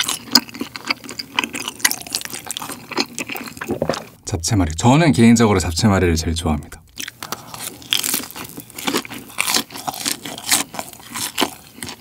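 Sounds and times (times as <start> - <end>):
crispy batter crunching: 0.0 - 4.2, 7.0 - 12.0.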